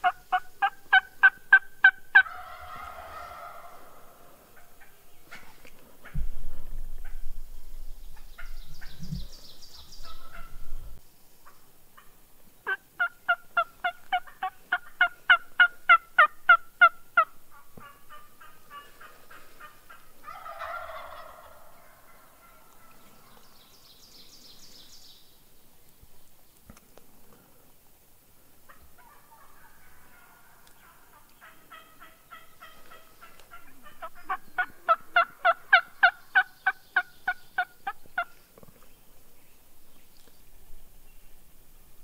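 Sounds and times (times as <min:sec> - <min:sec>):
turkey yelps: 0:00.0 - 0:04.2, 0:10.0 - 0:10.6, 0:12.7 - 0:22.9, 0:28.7 - 0:38.3
turkey gobble: 0:00.0 - 0:05.4, 0:10.0 - 0:10.6, 0:11.4 - 0:23.4, 0:28.7 - 0:38.4
small bird chirping: 0:08.1 - 0:11.0.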